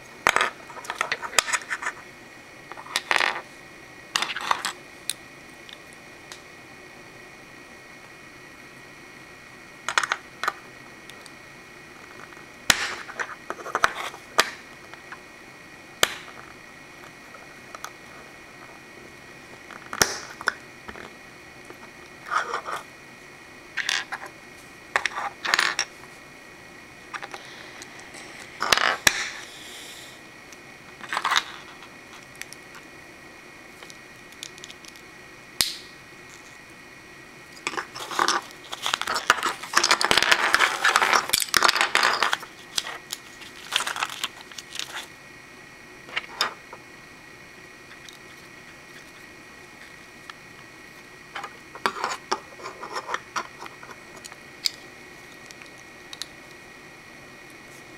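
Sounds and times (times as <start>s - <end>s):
faint steady hum: 0.0s - 57.9s.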